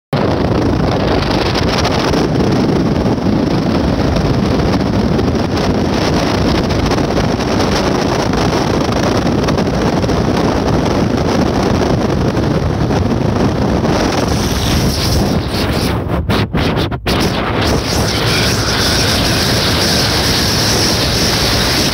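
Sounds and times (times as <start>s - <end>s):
wind rushing on microphone: 0.1s - 21.9s
road noise: 17.0s - 21.9s
motorcycle engine: 17.2s - 21.9s.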